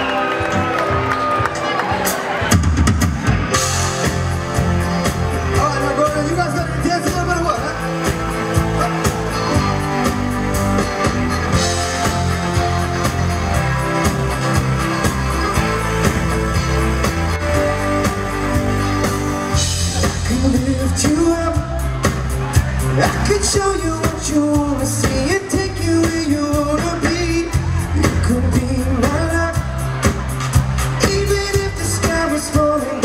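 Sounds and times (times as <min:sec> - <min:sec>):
live rock band playing: 0:00.0 - 0:33.0.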